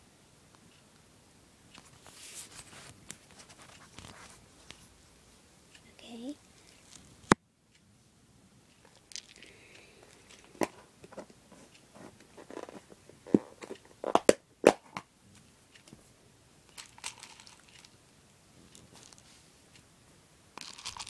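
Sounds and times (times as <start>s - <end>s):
plastic beads rattling: 8.8s - 9.5s, 10.1s - 10.7s, 16.7s - 18.0s, 18.7s - 19.2s, 20.6s - 21.0s
sharp clicks of beads: 8.8s - 10.6s, 16.7s - 18.0s, 20.6s - 21.0s.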